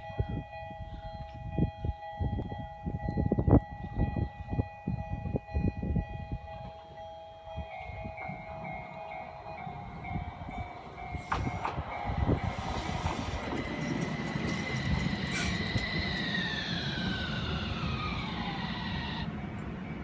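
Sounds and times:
wheels rumbling on rail: 0.0s - 20.0s
traction motors whining: 8.2s - 20.0s
tram wheels knocking on rail joints: 8.2s - 20.0s.

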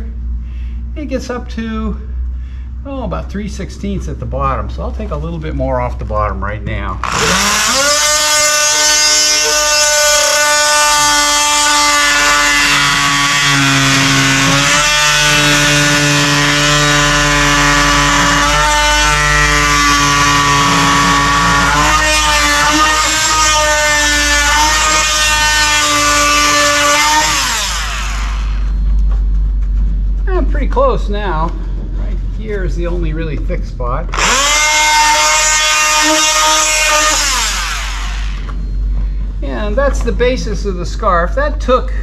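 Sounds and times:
oscillating saw cutting wood: 7.0s - 28.8s, 34.1s - 38.6s.

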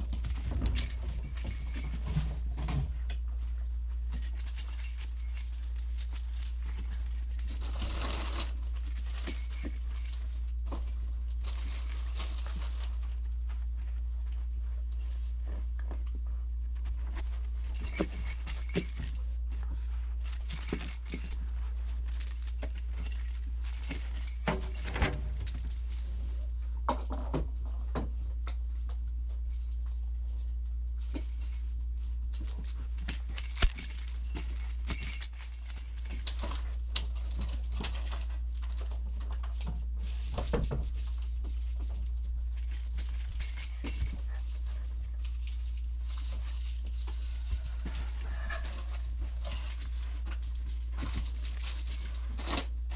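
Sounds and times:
metallic jingling and clinking: 0.0s - 2.3s, 4.0s - 10.7s, 11.4s - 12.8s, 16.9s - 27.2s, 29.4s - 36.7s, 42.4s - 46.8s, 47.6s - 52.8s
steady low hum: 0.0s - 52.9s.

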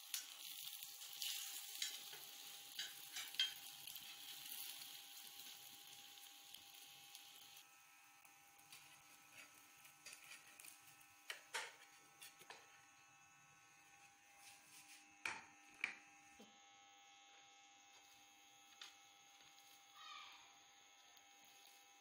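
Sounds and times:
low electrical hum: 0.0s - 22.0s
metal spatula scraping griddle: 0.1s - 6.0s, 8.7s - 11.0s.

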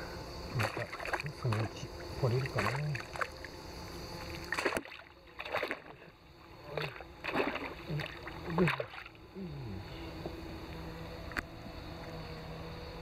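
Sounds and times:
net splashing through water: 0.5s - 3.5s, 4.2s - 9.2s.

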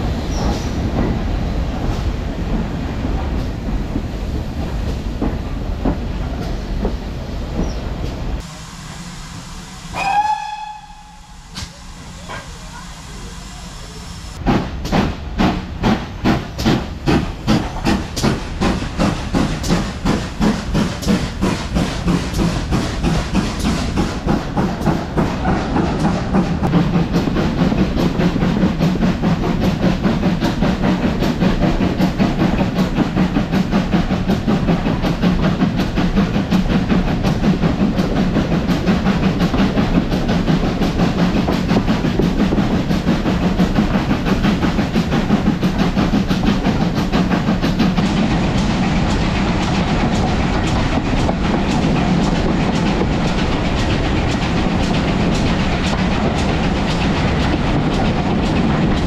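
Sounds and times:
steam locomotive chuffing: 0.0s - 59.0s.

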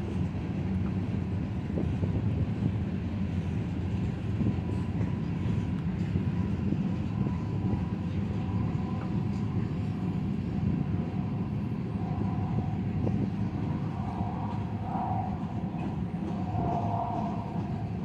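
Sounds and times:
train wheels rumbling on rails: 0.0s - 18.0s
faint high whine: 4.7s - 18.0s.

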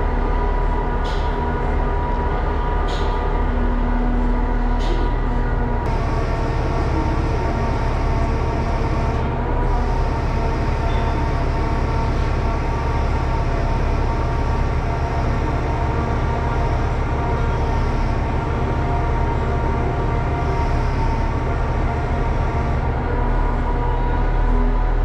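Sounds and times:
diesel truck engine idling: 5.9s - 24.2s.

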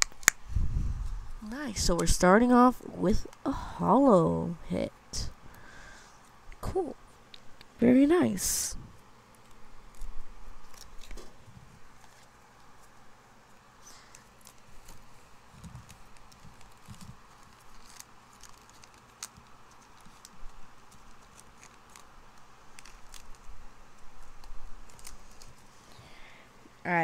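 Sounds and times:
cards being flipped through: 9.3s - 13.0s, 13.8s - 25.9s
foil pack crinkling: 9.3s - 13.1s, 13.8s - 26.0s.

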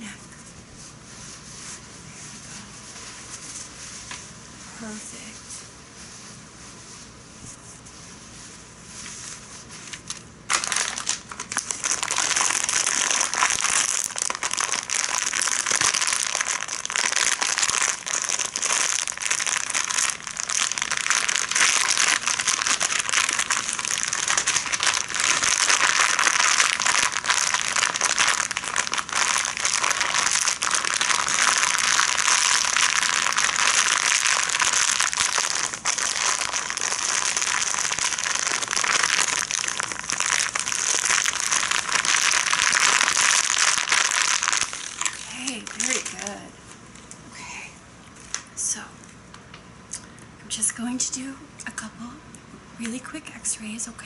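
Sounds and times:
towel rubbing against microphone: 0.4s - 4.3s, 5.3s - 9.9s.

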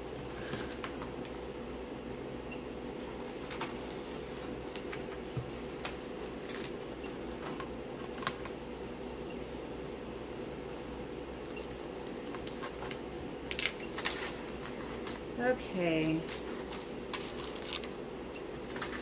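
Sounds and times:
steady room hum: 0.0s - 19.0s
plastic film crinkling: 11.5s - 15.2s, 16.2s - 18.0s.

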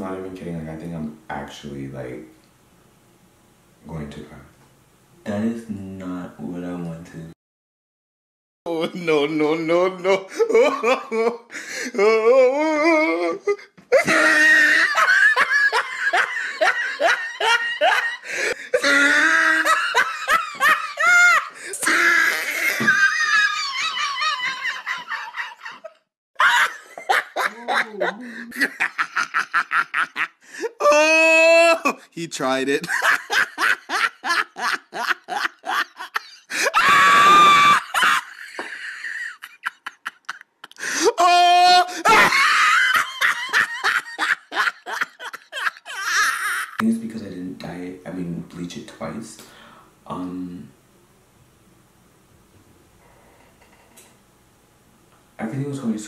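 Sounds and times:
man laughing: 8.7s - 32.1s, 32.8s - 46.8s.

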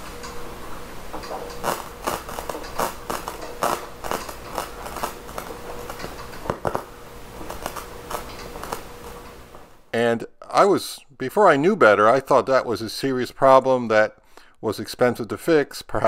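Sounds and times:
crackling static from volume knob: 0.0s - 9.9s
faint hum: 0.0s - 14.8s.

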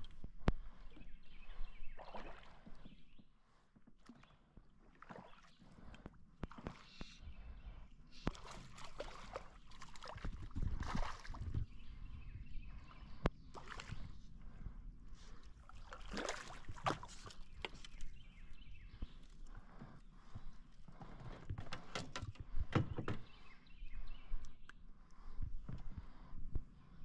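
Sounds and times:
water splashing and sloshing: 0.0s - 12.0s, 12.7s - 14.6s, 15.2s - 18.3s.

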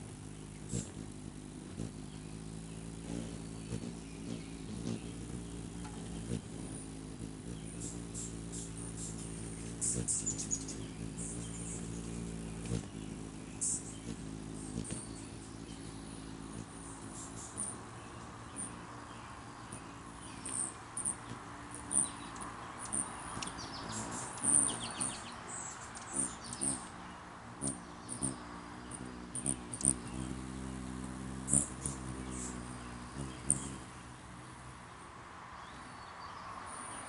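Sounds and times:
hummingbird chip calls: 0.0s - 35.0s
hummingbird wingbeats buzzing: 0.0s - 37.0s.

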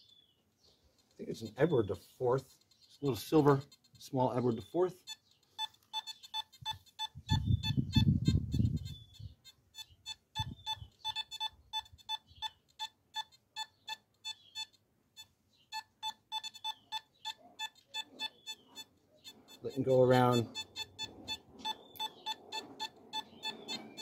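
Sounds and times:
metal detector short beeps: 4.3s - 24.0s.

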